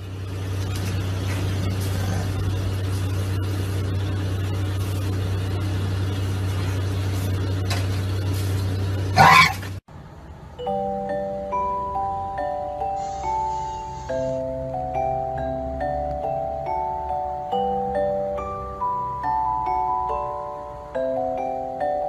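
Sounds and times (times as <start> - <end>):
low hum: 0.0 - 12.6.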